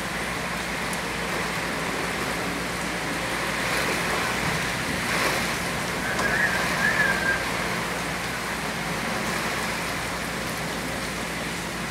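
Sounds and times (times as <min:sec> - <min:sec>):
heavy rain on foliage: 0:00.0 - 0:11.9.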